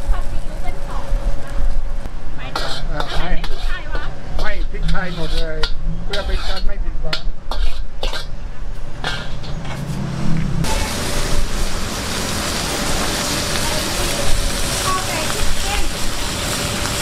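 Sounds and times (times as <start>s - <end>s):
food sizzling: 0.0s - 10.0s, 10.6s - 17.0s
metal spatula scraping a wok: 2.4s - 11.3s.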